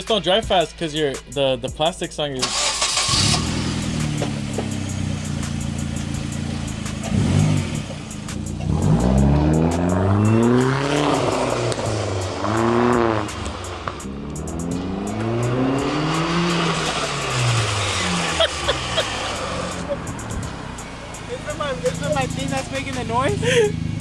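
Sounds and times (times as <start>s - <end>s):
turbocharged car engine revving: 2.4s - 24.0s.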